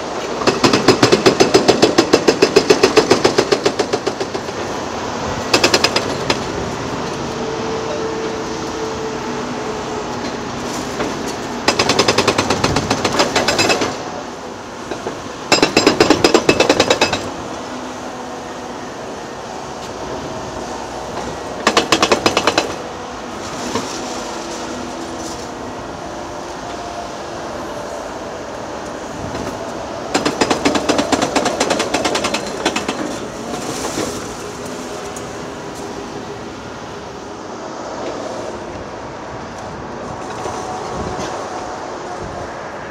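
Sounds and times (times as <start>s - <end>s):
rapid mechanical hammering: 0.4s - 4.6s, 5.5s - 6.5s, 11.6s - 14.0s, 15.0s - 17.3s, 21.6s - 22.8s, 30.1s - 33.2s.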